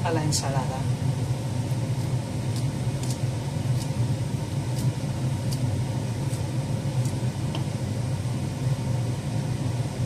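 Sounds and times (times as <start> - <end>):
steady low hum: 0.0 - 10.0
knife cutting leaves: 1.7 - 7.6.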